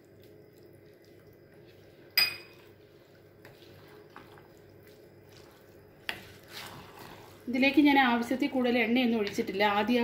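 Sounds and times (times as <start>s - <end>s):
sharp clink with ring: 2.2s - 2.6s
spatula scraping pan: 2.9s - 4.6s, 5.2s - 7.7s.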